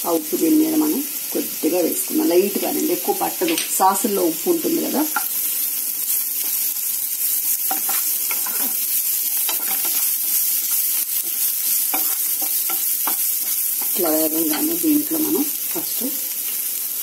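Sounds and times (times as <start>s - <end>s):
vegetables sizzling in hot oil: 0.0s - 17.0s
spatula scraping a pan: 6.0s - 15.9s.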